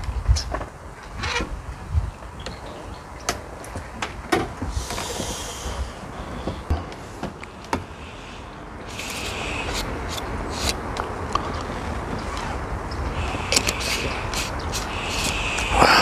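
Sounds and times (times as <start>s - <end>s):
steady low rumble: 4.6s - 16.0s
short hissing rustles: 4.7s - 10.9s, 12.2s - 16.0s.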